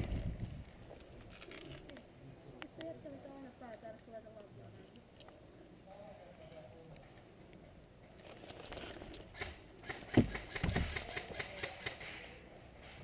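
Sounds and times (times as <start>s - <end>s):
airsoft guns firing: 9.3s - 12.2s.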